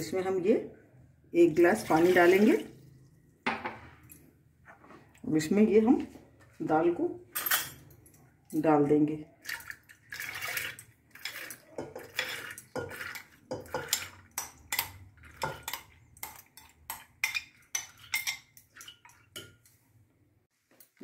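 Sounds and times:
lentils clinking into steel pot: 0:10.1 - 0:19.6
glass bowl knocking metal pot: 0:11.8 - 0:15.7.

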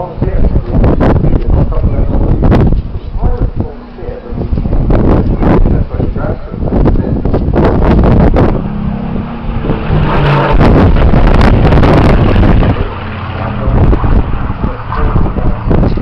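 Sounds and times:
propeller aircraft flying past: 0:07.5 - 0:16.0.

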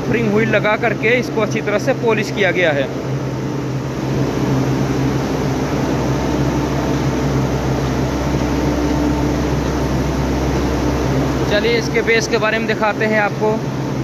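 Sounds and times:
machinery drone: 0:00.0 - 0:14.0.

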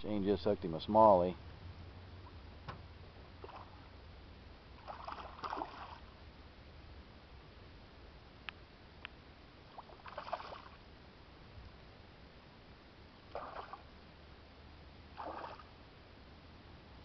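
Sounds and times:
fish splashing in water: 0:04.8 - 0:06.1, 0:09.8 - 0:10.8, 0:13.3 - 0:13.8, 0:15.2 - 0:15.7.

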